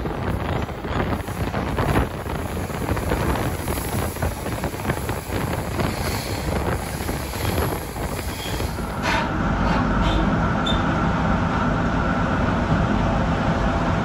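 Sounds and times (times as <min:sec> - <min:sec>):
wind buffeting microphone: 0:00.0 - 0:09.6
train running on track: 0:00.0 - 0:14.0.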